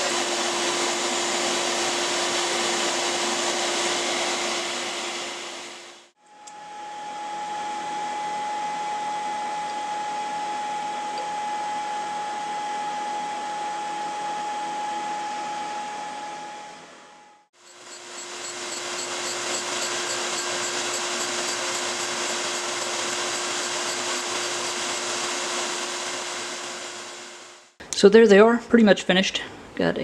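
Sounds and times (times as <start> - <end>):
grinding wheel whirring hiss: 17.6 - 27.7.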